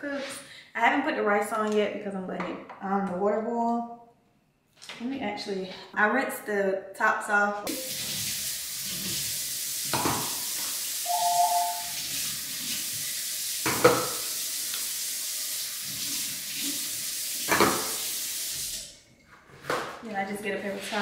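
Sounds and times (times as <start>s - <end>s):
tap water running: 7.7s - 19.0s
two-tone beep: 11.0s - 12.0s.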